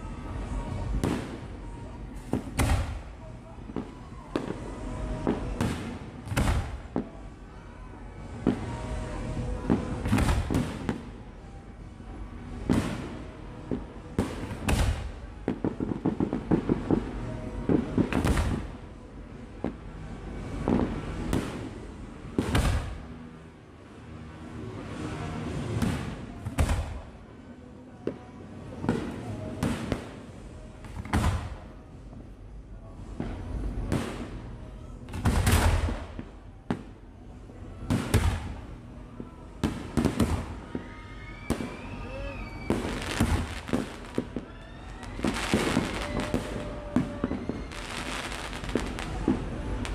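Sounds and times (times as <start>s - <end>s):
fireworks bangs: 0.6s - 7.2s, 8.3s - 11.1s, 12.5s - 18.8s, 19.6s - 23.2s, 24.9s - 27.2s, 28.8s - 31.7s, 33.0s - 37.0s, 37.6s - 49.9s
fireworks crackling pops: 1.0s - 1.5s, 2.2s - 3.1s, 3.7s - 7.1s, 9.6s - 11.2s, 12.7s - 18.8s, 22.4s - 23.1s, 25.7s - 27.1s, 28.8s - 31.6s, 33.2s - 37.0s, 37.9s - 38.9s, 39.6s - 49.9s.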